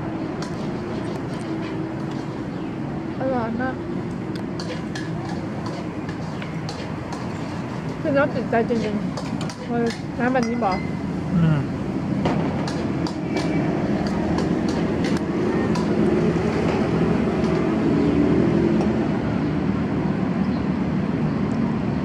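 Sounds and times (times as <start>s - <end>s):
road traffic rumble: 0.0s - 22.0s.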